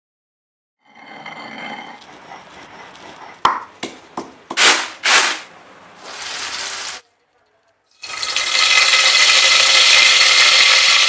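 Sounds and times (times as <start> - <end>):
pestle pounding in stone mortar: 3.4 - 4.8
seeds trickling into stone bowl: 6.0 - 7.0.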